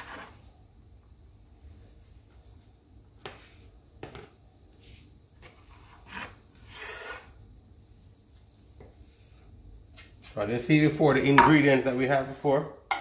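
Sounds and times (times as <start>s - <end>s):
knife scraping on board: 5.4s - 7.3s.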